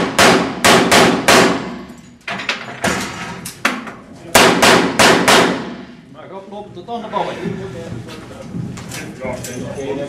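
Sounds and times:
pistol shots ringing in a room: 0.0 - 2.0, 4.4 - 5.9.

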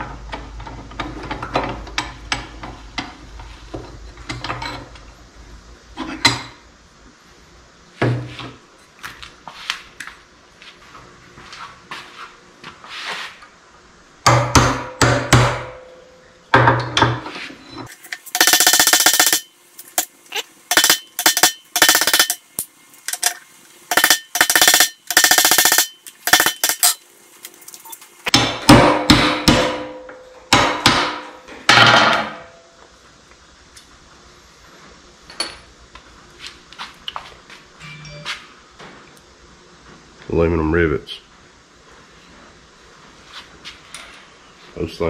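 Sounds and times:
hammer striking metal punch: 14.2 - 17.1, 20.7 - 22.4, 28.3 - 32.5.

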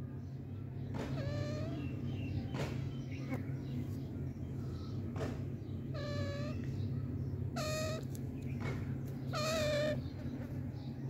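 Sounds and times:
parakeet meow-like calls: 1.1 - 2.0, 5.9 - 6.7, 7.6 - 8.1, 9.3 - 10.1.

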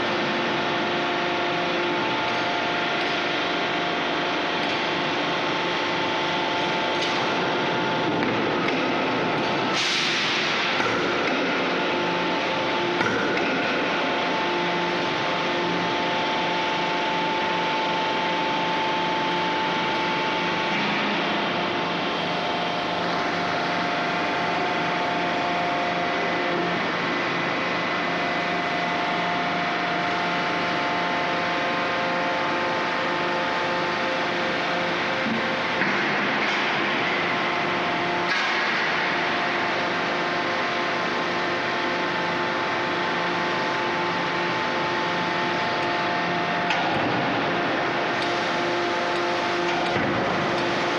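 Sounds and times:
industrial machinery humming: 0.0 - 50.9.

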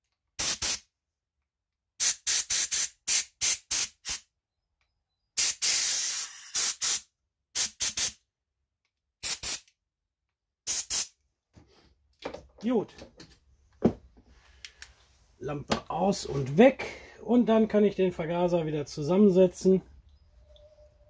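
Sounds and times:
compressed air hissing blasts: 0.4 - 0.9, 2.0 - 4.2, 5.4 - 8.2, 9.2 - 9.6, 10.7 - 11.2.

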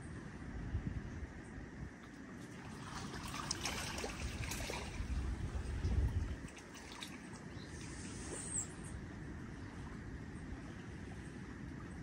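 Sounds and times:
water lapping and trickling: 1.3 - 12.0
small splashes: 2.0 - 8.6.

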